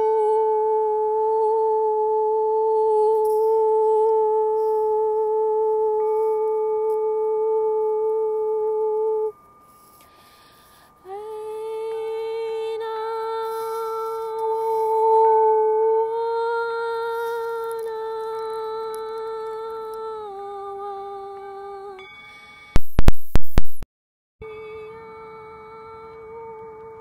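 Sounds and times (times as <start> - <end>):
person humming long notes: 0.0 - 9.4, 11.0 - 22.0.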